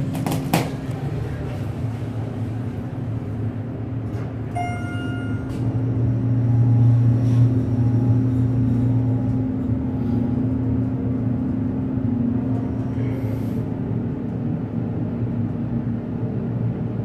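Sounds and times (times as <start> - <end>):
elevator hum and rumble: 0.0 - 17.0.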